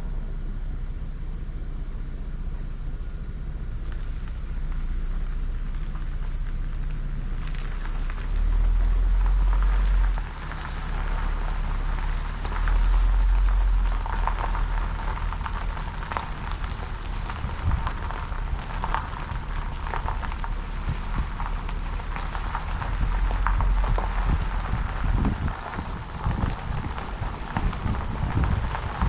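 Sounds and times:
vehicle road rumble: 0.0s - 29.0s
crackling patter of ticks: 3.6s - 29.0s.

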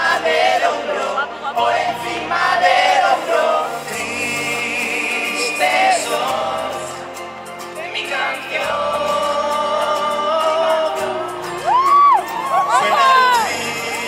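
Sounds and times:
person singing into microphone: 7.8s - 14.0s.

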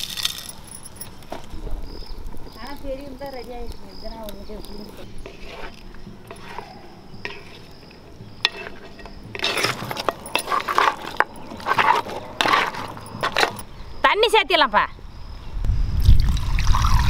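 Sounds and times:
bones clattering in metal vessel: 8.4s - 13.6s.

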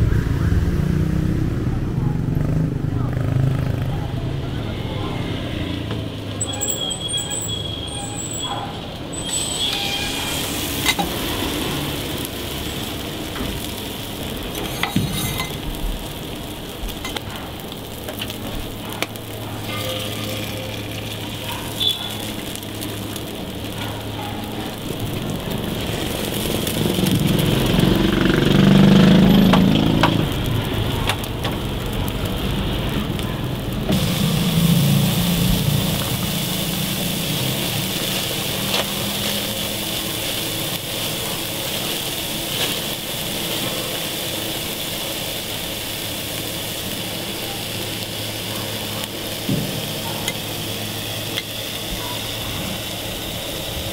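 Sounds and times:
low rumble: 0.0s - 3.0s, 29.2s - 39.1s
food sizzling on griddle: 2.5s - 53.9s.

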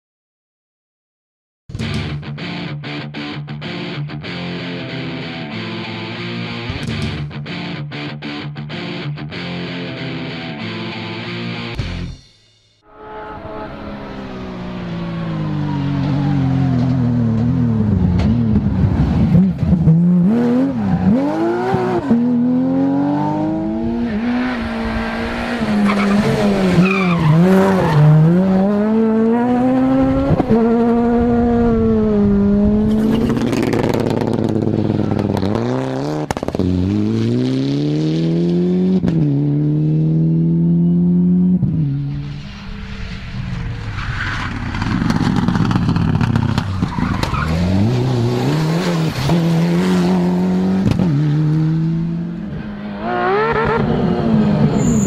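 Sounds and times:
rally car engines revving: 13.3s - 55.0s
tyre squeal: 54.7s - 55.0s.

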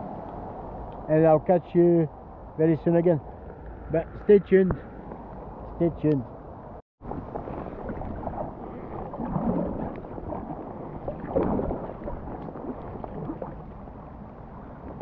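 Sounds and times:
swells of water noise: 7.0s - 15.0s
rain falling on water: 7.1s - 15.0s.

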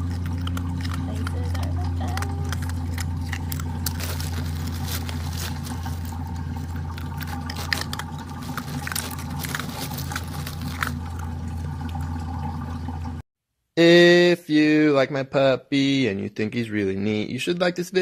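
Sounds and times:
crushed ice crackling: 0.0s - 12.1s
low hum: 0.0s - 13.2s.

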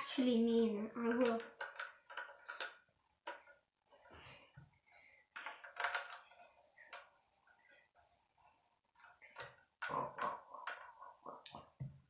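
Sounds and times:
plastic bricks clicking and rattling: 1.0s - 3.6s, 5.4s - 6.3s.

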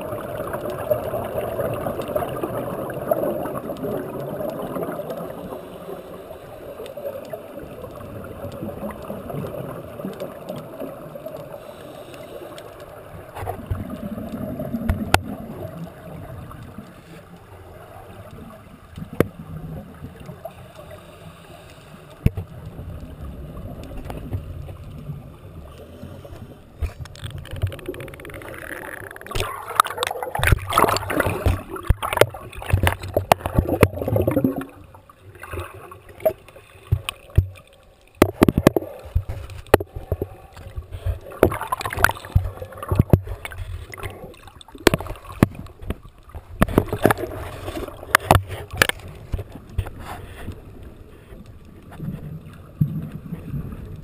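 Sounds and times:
underwater bubbling: 0.0s - 54.0s
sharp clicks: 26.8s - 33.9s
knocks and splashy noise: 26.8s - 34.6s, 38.2s - 44.1s.

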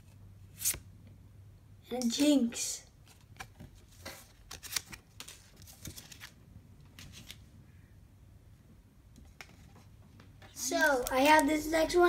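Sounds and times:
cards sliding and flicking: 0.1s - 0.9s, 3.0s - 6.3s.

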